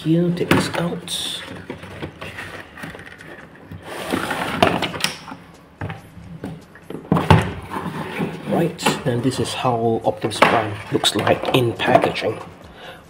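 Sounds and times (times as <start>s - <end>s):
packaging scraping and rustling: 1.1s - 5.1s, 6.6s - 9.6s.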